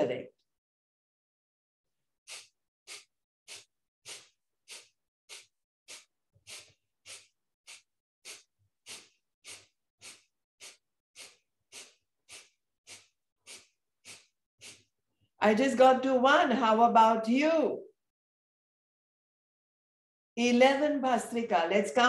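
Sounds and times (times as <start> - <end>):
woman's forceful nasal exhalations: 2.2 - 15.0.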